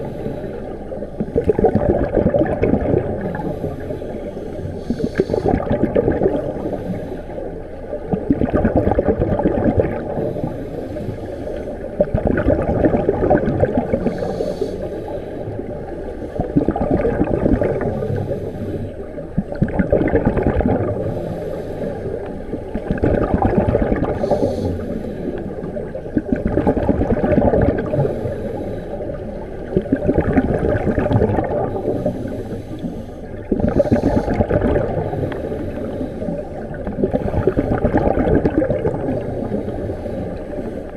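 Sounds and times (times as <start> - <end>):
faint regulator hiss: 0.0 - 1.4, 3.1 - 5.7, 6.3 - 8.3, 10.1 - 12.1, 13.8 - 16.6, 17.7 - 19.6, 20.9 - 23.0, 24.1 - 26.4, 27.8 - 29.9, 31.6 - 38.0, 38.9 - 40.9
regulator bubbling exhalations: 1.2 - 4.0, 4.6 - 7.1, 8.1 - 11.2, 12.0 - 15.2, 16.4 - 18.8, 19.4 - 21.9, 22.8 - 28.7, 29.7 - 32.8, 33.4 - 40.9.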